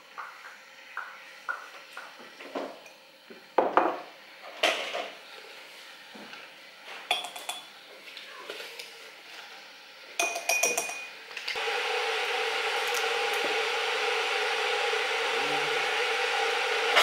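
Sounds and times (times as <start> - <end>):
glassware and spoon clinking: 10.2 - 11.1.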